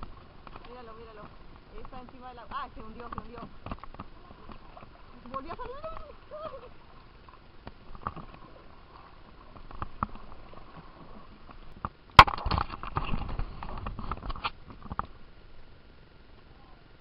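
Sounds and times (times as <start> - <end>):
camera bumping and rubbing: 2.8 - 4.1.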